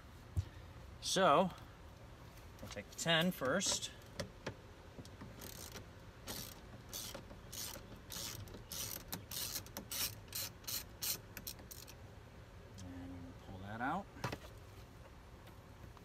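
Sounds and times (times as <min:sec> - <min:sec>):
ratchet wrench clicking: 0:05.4 - 0:12.0.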